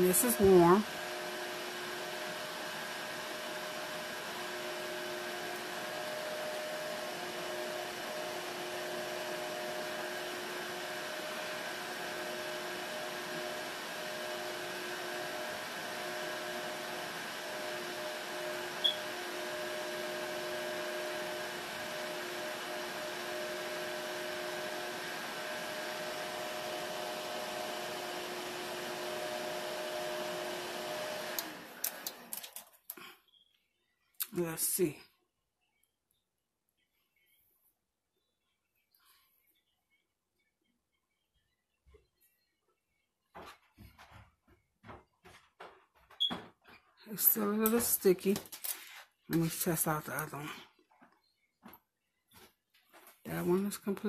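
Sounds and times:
nail dryer fan whirring: 0:00.0 - 0:33.1, 0:47.1 - 0:50.4.

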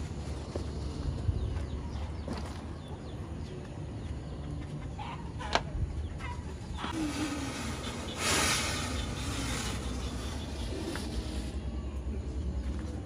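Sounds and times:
fog machine hissing: 0:07.0 - 0:11.6.

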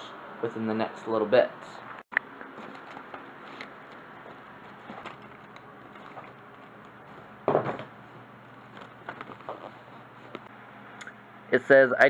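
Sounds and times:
hands rummaging objects on shelf: 0:02.4 - 0:10.5.

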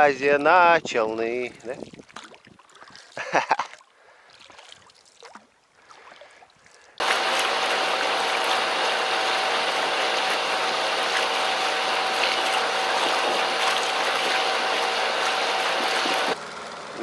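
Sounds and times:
water splash: 0:07.0 - 0:16.4
water trickling: 0:07.0 - 0:16.4
boat motor drone: 0:07.0 - 0:16.5.

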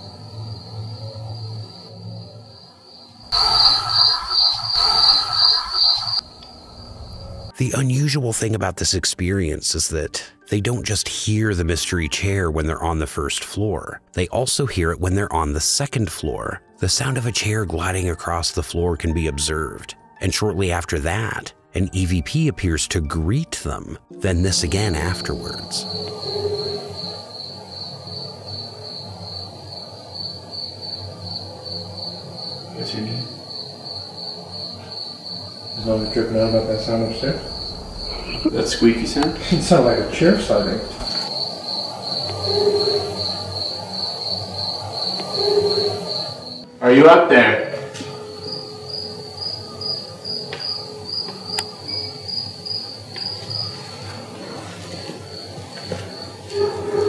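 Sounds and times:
crickets chirping: 0:00.0 - 0:07.8, 0:24.1 - 0:46.8, 0:47.4 - 0:57.0.

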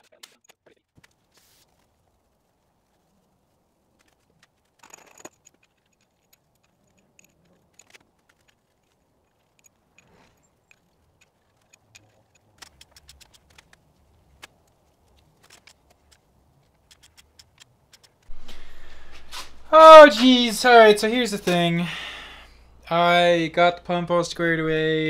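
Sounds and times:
faint metallic clicks and taps: 0:04.0 - 0:18.3.

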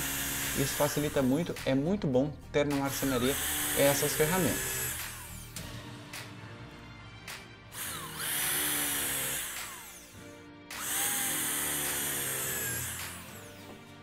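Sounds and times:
electric drill boring into wood: 0:00.0 - 0:01.6, 0:02.9 - 0:05.6, 0:07.8 - 0:14.0.

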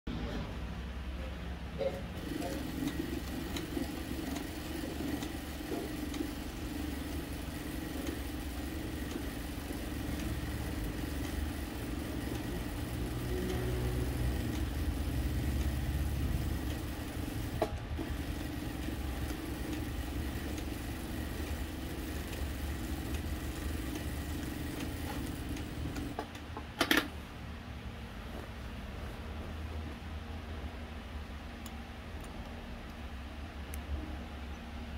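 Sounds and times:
sewing machine running: 0:02.2 - 0:26.2.

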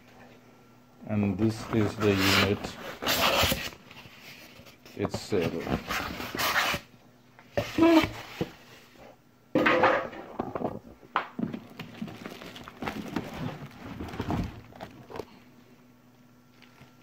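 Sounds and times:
cardboard and plastic rustling: 0:01.4 - 0:06.8, 0:10.4 - 0:15.5.

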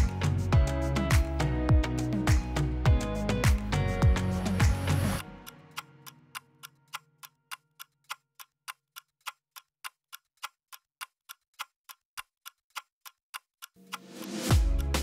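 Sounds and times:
clock-like ticking: 0:05.4 - 0:15.0.

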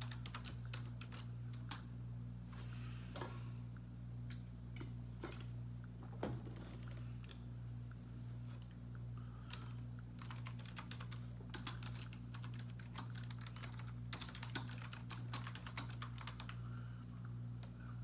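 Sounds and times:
typing on computer keyboard: 0:00.0 - 0:01.8, 0:10.2 - 0:16.6
steady low hum: 0:00.0 - 0:18.0.

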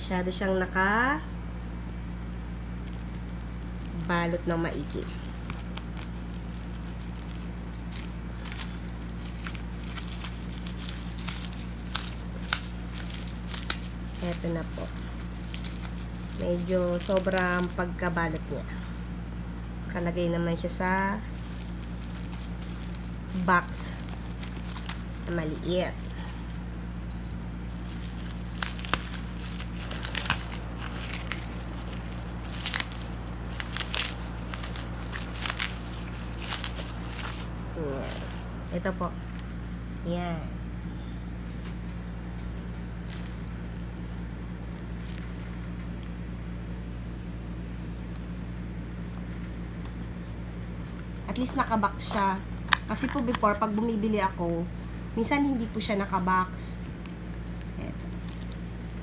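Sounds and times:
steady low hum: 0:00.0 - 0:59.0
scissors cutting bubble wrap: 0:02.8 - 0:18.6, 0:20.6 - 0:38.5.

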